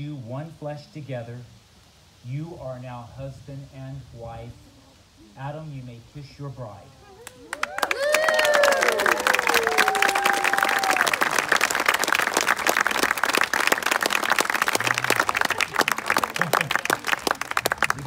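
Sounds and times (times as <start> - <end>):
people clapping: 7.2 - 18.0
person cheering: 7.5 - 11.3.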